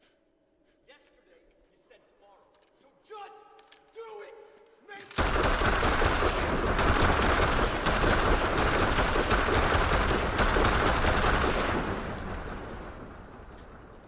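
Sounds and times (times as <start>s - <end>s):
gunfire echo: 5.1s - 14.0s
automatic rifle fire: 5.2s - 13.9s.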